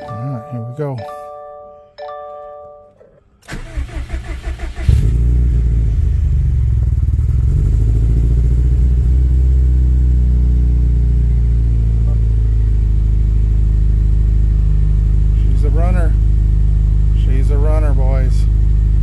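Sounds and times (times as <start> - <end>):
chime ringing: 0.0 - 3.0
engine starter cranking: 2.9 - 5.5
car engine idling: 2.9 - 19.0.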